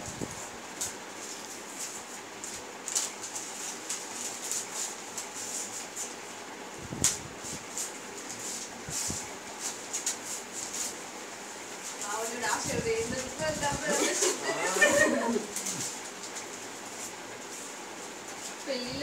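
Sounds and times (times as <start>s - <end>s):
packaging rustling and crinkling: 0.7s - 6.3s.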